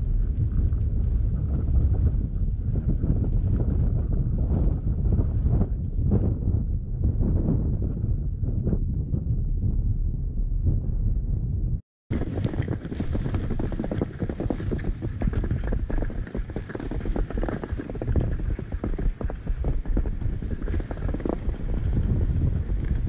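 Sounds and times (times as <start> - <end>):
wind on microphone: 0.0 - 23.0
skis scraping over snow: 12.1 - 23.0.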